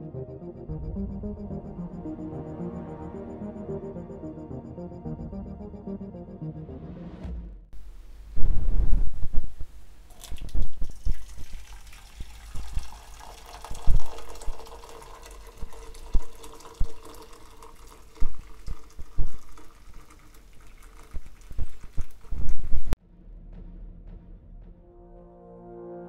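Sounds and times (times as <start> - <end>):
water pouring into a metal cup: 10.1 - 22.9.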